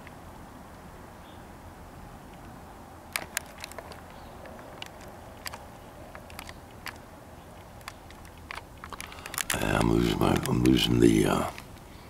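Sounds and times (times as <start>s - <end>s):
faint steady hiss: 0.0s - 12.0s
fingers tapping a camcorder: 3.2s - 7.0s, 7.6s - 11.7s.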